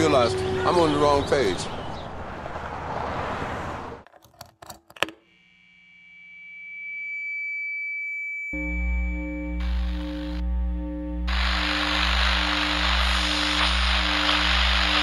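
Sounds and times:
amplifier feedback tone: 5.3 - 15.0.

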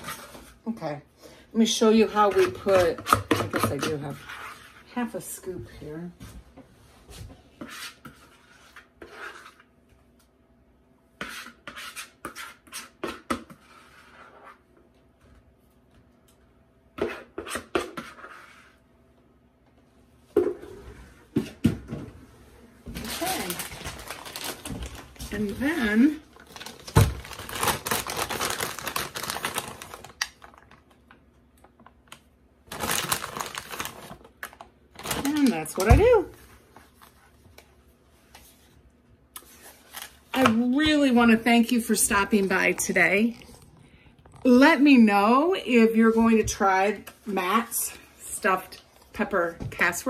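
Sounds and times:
kitchen scrapes and rubs: 0.0 - 0.8, 1.6 - 5.8, 6.7 - 9.9, 11.1 - 14.9, 17.0 - 19.0, 20.4 - 21.6
plastic bag crinkling: 23.0 - 31.1, 32.7 - 35.9.

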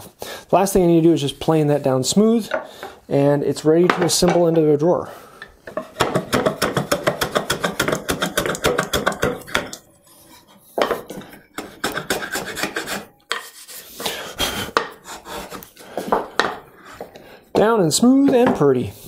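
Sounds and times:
hand plane shaving wood: 5.8 - 9.3, 11.1 - 16.2.

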